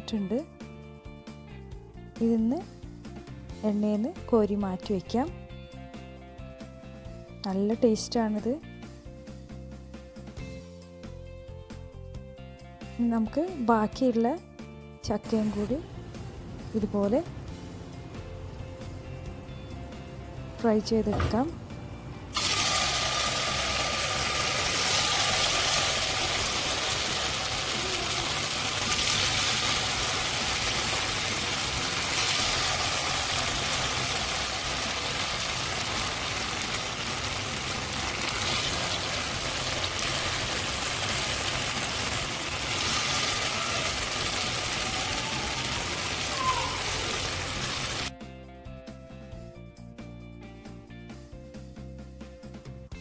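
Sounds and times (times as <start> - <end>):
faint music: 12.9 - 31.0
food sizzling in hot oil: 22.3 - 48.1.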